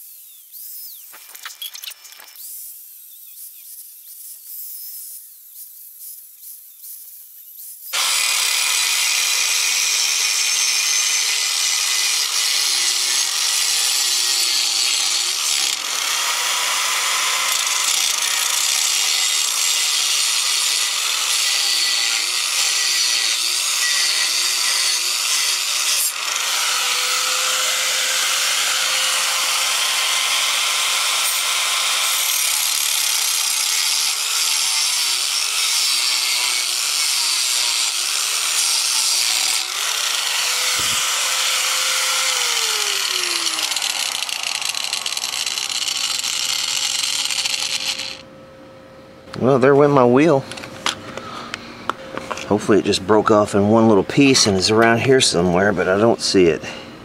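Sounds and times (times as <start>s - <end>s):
angle grinder cutting sheet metal: 7.9s - 48.2s, 52.3s - 56.1s.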